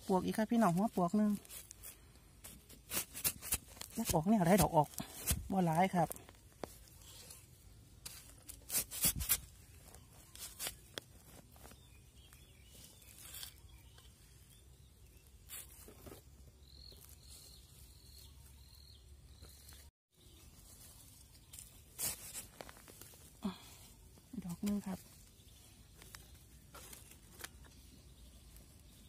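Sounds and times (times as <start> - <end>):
soil and leaves crackling: 0.0 - 29.0
faint high chirp: 16.6 - 22.0.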